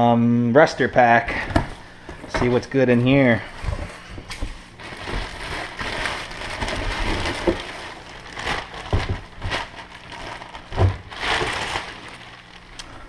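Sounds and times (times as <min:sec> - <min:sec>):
plastic bag crinkling: 0:04.4 - 0:13.0.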